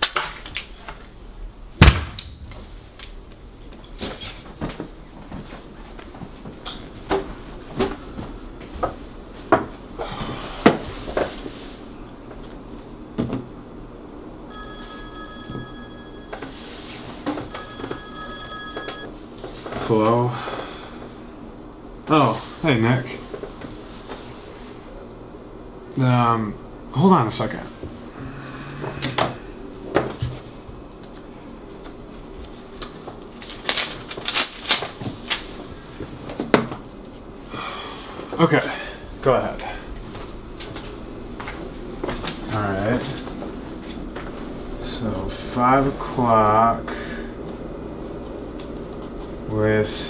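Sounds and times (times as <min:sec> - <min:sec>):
thump: 0:01.8 - 0:02.2
mobile phone ringtone: 0:14.5 - 0:19.1
paper rustling: 0:33.4 - 0:35.6.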